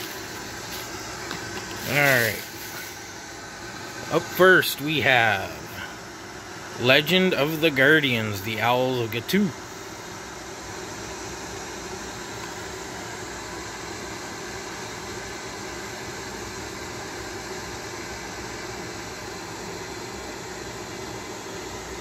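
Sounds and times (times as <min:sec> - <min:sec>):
background hiss: 0:00.0 - 0:11.2.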